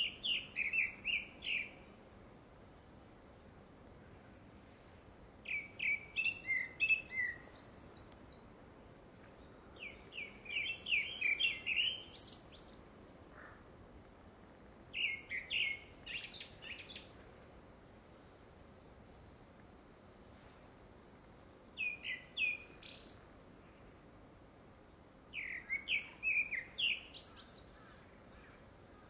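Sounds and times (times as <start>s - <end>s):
thrush singing whistled notes: 0.0s - 1.9s, 5.4s - 8.4s, 9.8s - 12.9s, 15.0s - 17.1s, 21.8s - 23.3s, 25.4s - 27.7s.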